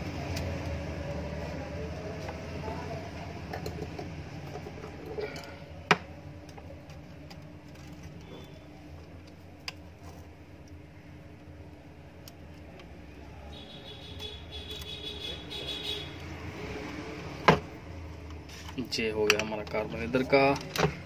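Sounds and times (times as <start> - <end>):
light clicks of motor parts: 18.2 - 21.0.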